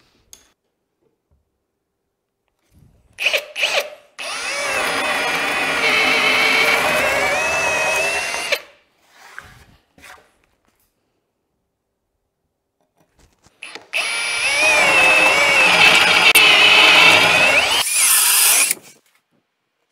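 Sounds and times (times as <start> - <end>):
cordless drill boring through wood: 3.2 - 8.7, 13.6 - 18.8.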